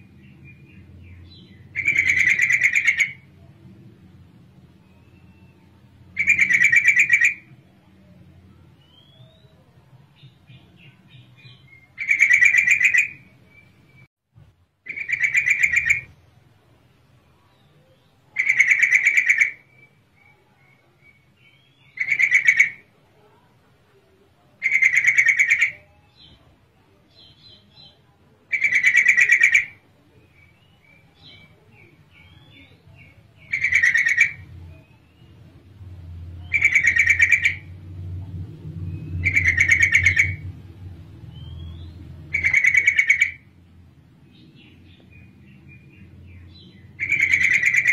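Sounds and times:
bird chattering call: 1.3s - 3.3s, 6.2s - 7.5s, 11.5s - 13.2s, 14.9s - 16.1s, 18.4s - 20.0s, 21.8s - 22.9s, 24.6s - 25.9s, 28.5s - 29.8s, 30.5s - 35.0s, 36.4s - 37.8s, 39.0s - 40.6s, 41.5s - 43.5s, 45.8s - 47.9s.

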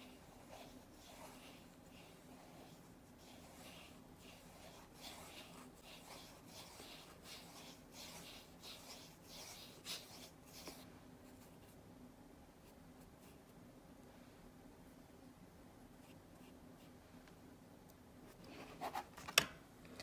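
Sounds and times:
paintbrush strokes on paper: 0.0s - 11.8s, 12.5s - 13.7s.

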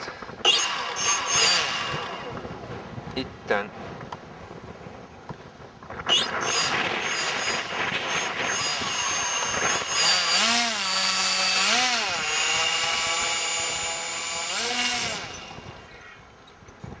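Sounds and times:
electric motor whining: 0.4s - 2.5s, 6.1s - 16.2s.

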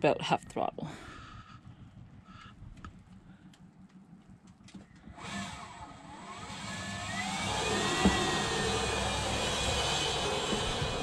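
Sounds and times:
electric motor whine: 5.1s - 11.0s.

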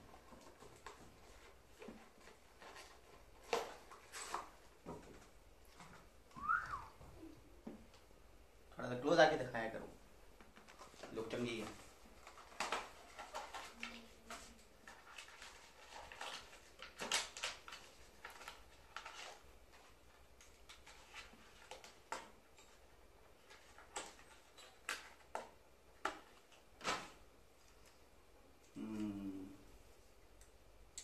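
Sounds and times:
plastic packaging crackling: 10.6s - 22.1s.

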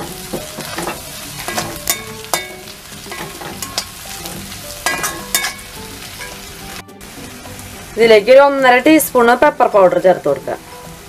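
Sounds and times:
metal spatula scraping and clinking: 0.0s - 6.4s
vegetables sizzling in oil: 0.0s - 11.0s.

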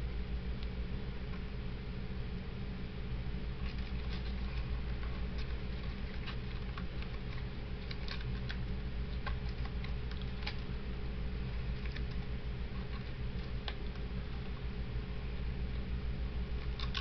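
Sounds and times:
steady low hum: 0.0s - 17.0s
cardboard package crinkling: 3.6s - 10.8s, 11.4s - 14.6s, 16.5s - 17.0s.

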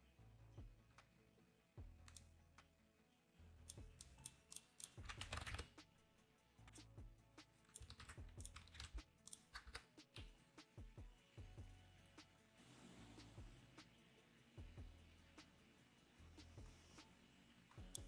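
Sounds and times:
computer keyboard typing: 3.8s - 5.9s, 7.7s - 10.3s.

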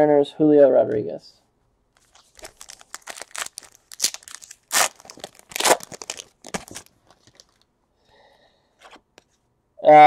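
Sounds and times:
wrapper tearing and crinkling: 2.0s - 7.6s.

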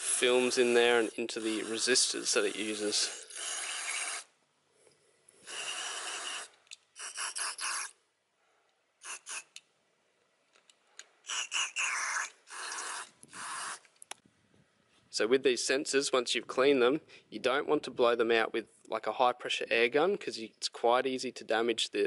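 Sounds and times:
aerosol can spraying: 0.0s - 4.3s, 5.4s - 7.9s, 9.0s - 9.6s, 11.3s - 13.8s.

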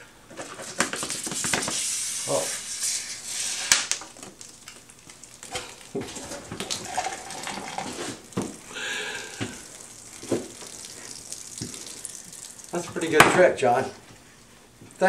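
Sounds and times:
liquid splashing and dripping: 3.7s - 13.4s.

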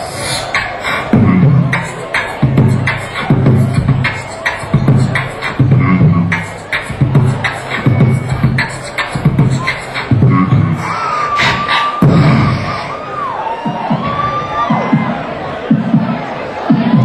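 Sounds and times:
beatboxing into microphone: 0.0s - 17.0s.

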